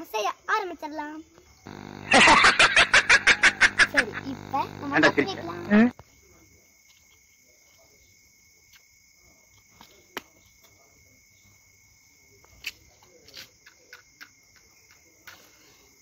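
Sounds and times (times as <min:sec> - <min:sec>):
crickets chirring: 0:01.4 - 0:16.0.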